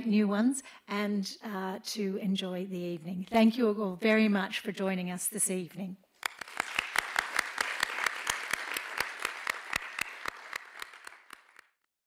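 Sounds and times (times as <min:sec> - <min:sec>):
audience applauding: 0:06.2 - 0:11.9
close hand claps: 0:06.2 - 0:11.9.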